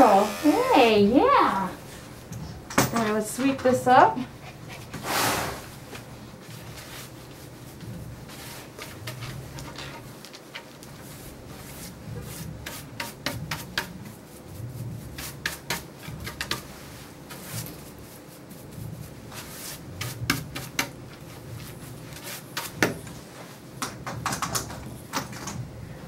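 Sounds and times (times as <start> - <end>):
hand brush sweeping hair: 10.9 - 23.6.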